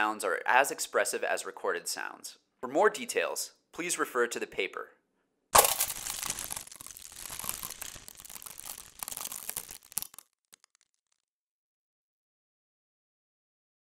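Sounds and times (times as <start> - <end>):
plastic and foil crumpling: 5.6 - 11.3.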